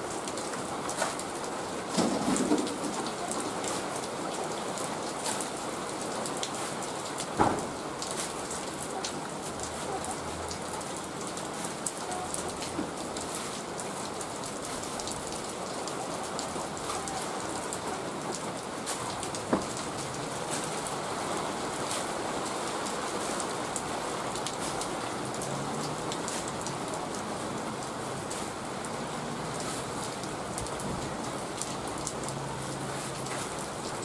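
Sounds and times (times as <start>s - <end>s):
rain on tarpaulins: 0.0s - 34.0s.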